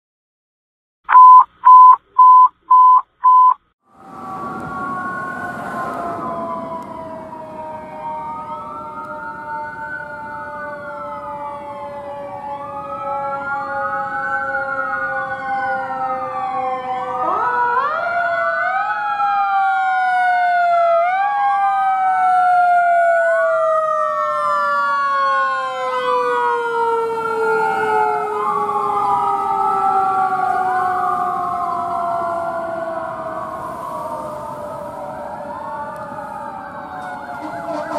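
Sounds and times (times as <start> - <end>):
short loud beeps: 1.1 - 3.6
long falling siren tones: 3.8 - 37.9
electronic sirens wailing: 3.9 - 37.9.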